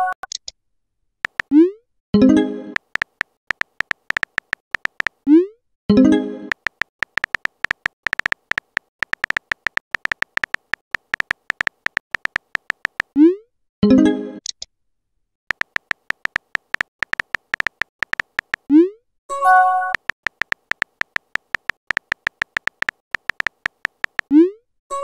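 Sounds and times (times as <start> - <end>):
synthetic keyboard taps: 1.2 - 1.6, 2.8 - 5.2, 6.5 - 13.2, 15.5 - 18.7, 19.8 - 24.3.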